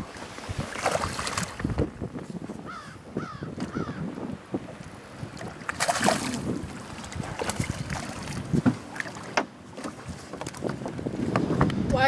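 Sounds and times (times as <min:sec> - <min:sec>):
wind buffeting microphone: 0:00.0 - 0:12.0
fish splashing at water surface: 0:00.6 - 0:01.7, 0:05.4 - 0:09.4.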